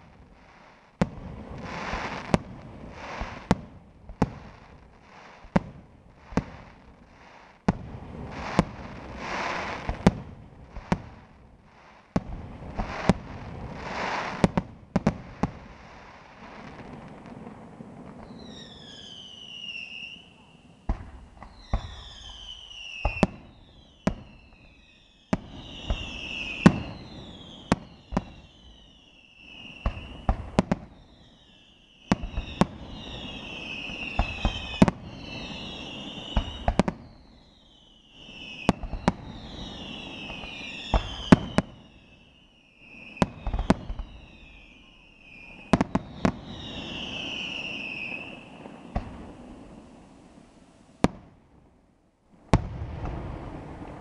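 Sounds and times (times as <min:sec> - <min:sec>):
crackling hiss of fireworks: 0:00.0 - 0:54.0
firework bangs: 0:12.1 - 0:31.0, 0:32.0 - 0:37.4, 0:38.2 - 0:51.7, 0:52.4 - 0:54.0
shrill falling whistles: 0:18.2 - 0:20.6, 0:21.5 - 0:30.4, 0:31.0 - 0:49.4.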